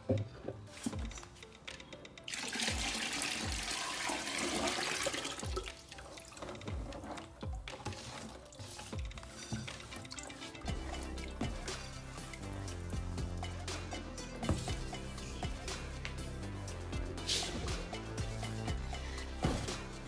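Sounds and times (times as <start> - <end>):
thick liquid pouring into bucket: 2.3 - 6.5.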